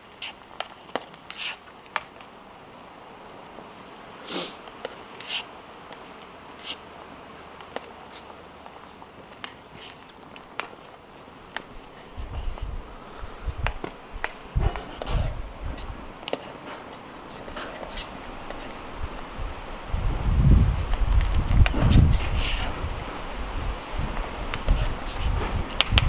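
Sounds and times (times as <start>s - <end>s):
boiling water hissing: 0.0s - 26.0s
low rumbling thumps: 14.4s - 16.1s, 19.0s - 24.5s.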